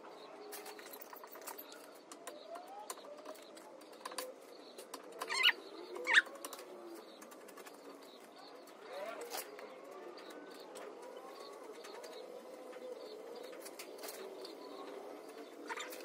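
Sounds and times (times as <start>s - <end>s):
dove cooing: 2.2s - 16.0s.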